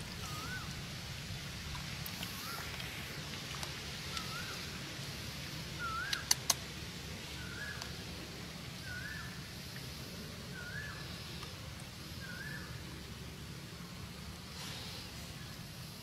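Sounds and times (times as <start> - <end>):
low steady hum: 0.0 - 16.0
sharp clicks: 6.0 - 6.6.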